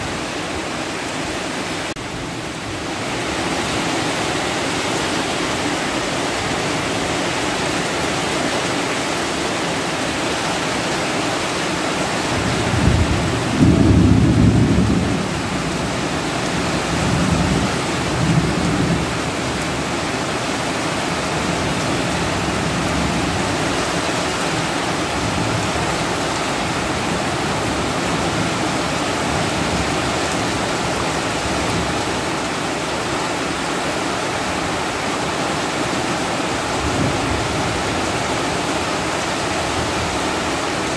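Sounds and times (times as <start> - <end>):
heavy rain pouring: 0.0 - 40.9
thunder rumbling: 12.4 - 19.1.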